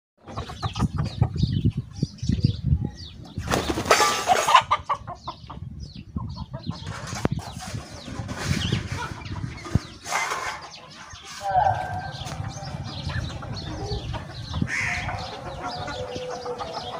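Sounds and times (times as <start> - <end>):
chickens clucking: 0.2 - 16.9
chickens scuffling: 3.2 - 5.1, 6.2 - 16.9
wings flapping: 3.4 - 4.2.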